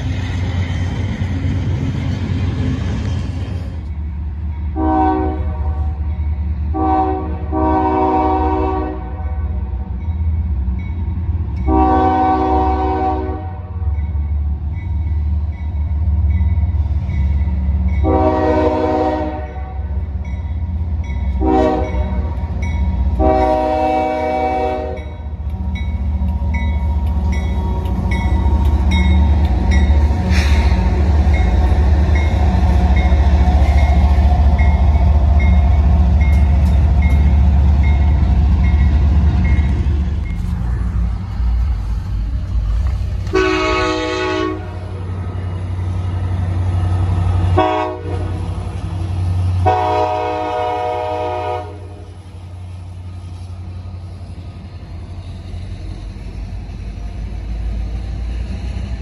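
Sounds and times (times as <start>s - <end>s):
diesel locomotive rumble: 0.0s - 59.0s
train air horn: 4.8s - 6.0s, 6.7s - 9.6s, 11.7s - 13.8s, 18.0s - 20.0s, 21.4s - 22.4s, 23.2s - 25.1s, 43.3s - 45.0s, 47.5s - 48.4s, 49.6s - 52.2s
crossing bell dinging: 19.5s - 23.2s, 24.8s - 30.2s, 31.2s - 40.6s.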